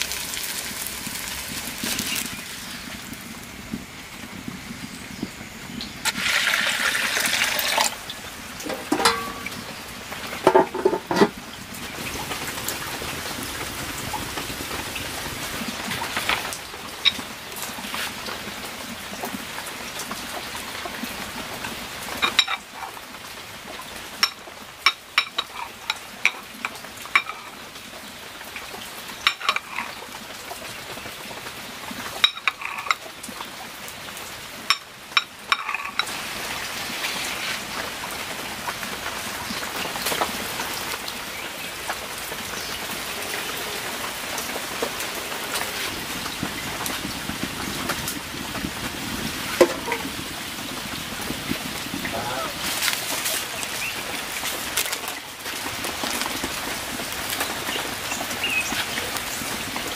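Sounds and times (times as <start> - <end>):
steady hiss: 0.0 - 24.8
cleaver knocking on ceramic plate: 10.4 - 11.3.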